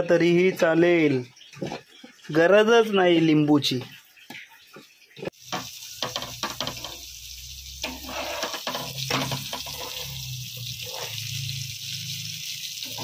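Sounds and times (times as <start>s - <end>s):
fish sizzling in oil: 4.0s - 13.0s.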